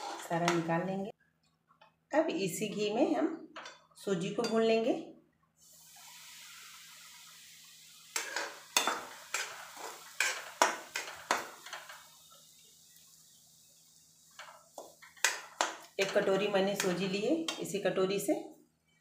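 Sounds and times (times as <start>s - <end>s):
metal spoon scraping pan: 0.0s - 0.7s, 8.2s - 12.0s
soft hiss of frying: 5.6s - 19.0s.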